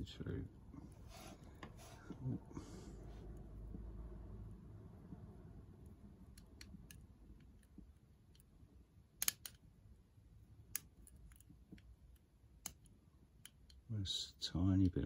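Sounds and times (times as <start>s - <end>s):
pick wire clicking in padlock: 9.2s - 9.6s, 10.7s - 11.9s.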